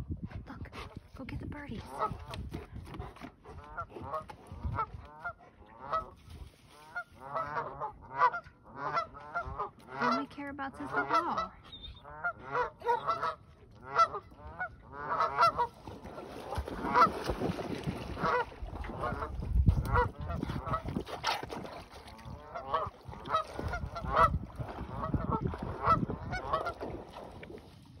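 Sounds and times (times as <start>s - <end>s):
geese honking: 6.9s - 15.7s, 22.4s - 24.3s.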